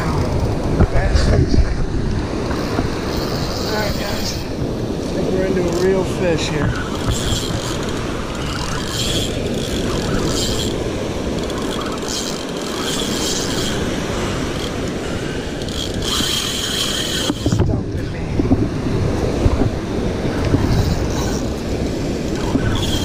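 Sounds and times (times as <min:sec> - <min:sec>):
wind and surf: 0:00.0 - 0:23.0
fishing reel drag buzzing: 0:02.5 - 0:04.5, 0:05.6 - 0:17.6, 0:20.3 - 0:23.0.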